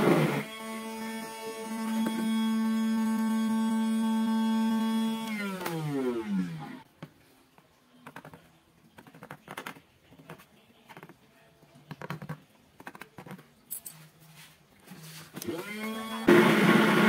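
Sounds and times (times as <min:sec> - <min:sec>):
pen tip scratching and tapping: 0:09.0 - 0:11.2, 0:11.9 - 0:13.4.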